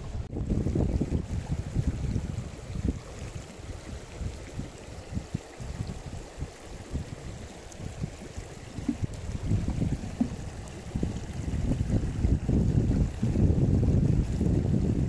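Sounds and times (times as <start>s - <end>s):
gusty wind buffeting microphone: 0.0s - 15.0s.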